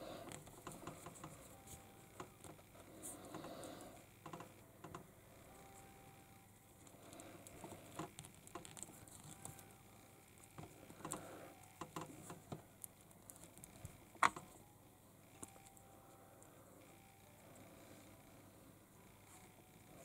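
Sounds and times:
plastic parts clicking and tapping: 4.2 - 5.1, 10.5 - 14.6.

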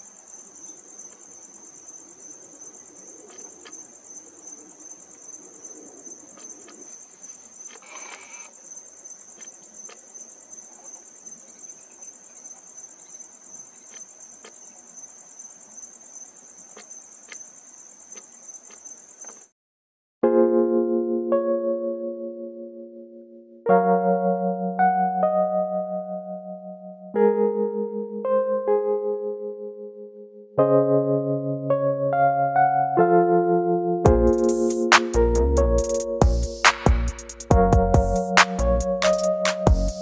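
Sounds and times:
crickets trilling: 0.0 - 19.5, 34.1 - 40.0
faint ticks: 6.3 - 8.6, 9.3 - 11.0, 13.6 - 14.7, 16.7 - 19.5.

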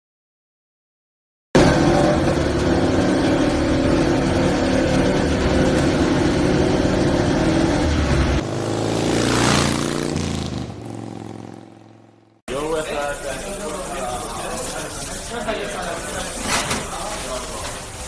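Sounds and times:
racing motorcycle engine running: 1.6 - 12.4
rising whoosh: 6.6 - 12.1.

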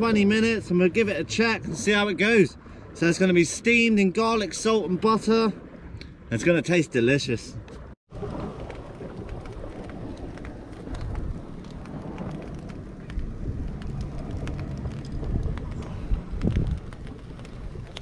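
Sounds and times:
crackles and pops: 8.1 - 18.0
low rumble: 8.1 - 18.0.

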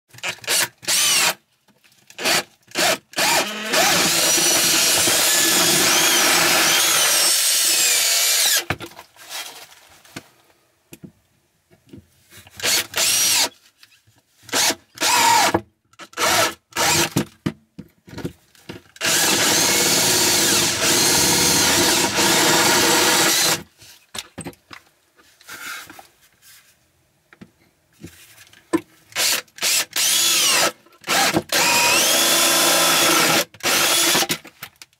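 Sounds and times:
drill boring through wood: 0.2 - 1.4, 2.2 - 8.7, 12.6 - 13.5, 14.5 - 17.2, 19.0 - 23.6, 29.2 - 34.4.

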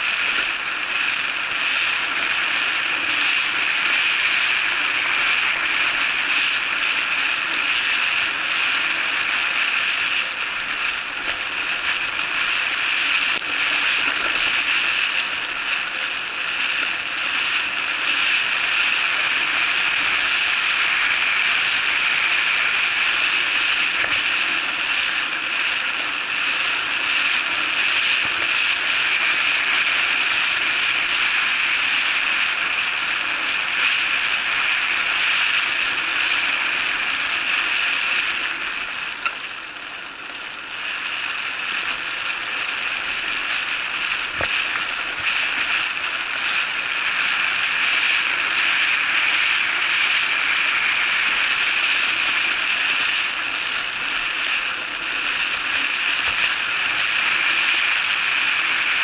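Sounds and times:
bike tyre noise on dirt: 0.0 - 59.0.

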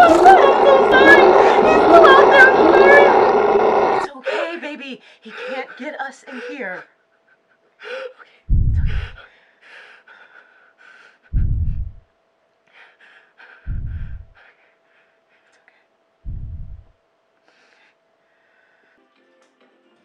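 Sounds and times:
shaky breathing and gasps: 7.3 - 12.0
deep booming thuds overhead: 8.5 - 9.2, 11.3 - 12.0, 13.7 - 14.4, 16.3 - 16.9.

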